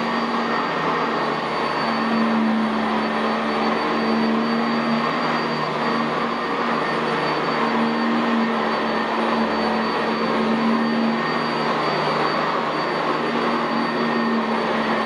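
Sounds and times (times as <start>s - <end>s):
vacuum cleaner on carpet: 0.0s - 15.0s.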